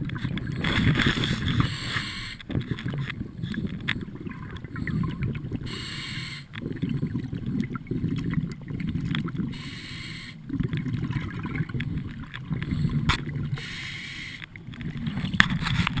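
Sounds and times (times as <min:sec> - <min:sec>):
low rumble of exhaled bubbles: 0:00.0 - 0:16.0
hissing regulator inhale: 0:01.2 - 0:02.6, 0:04.9 - 0:06.6, 0:09.5 - 0:10.5, 0:12.7 - 0:14.5.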